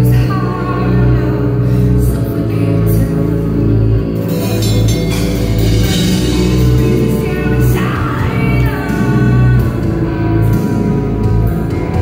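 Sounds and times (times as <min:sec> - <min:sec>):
woman singing into a microphone: 0:00.0 - 0:04.2, 0:06.2 - 0:10.8
heavy guitars and drums: 0:00.0 - 0:12.0.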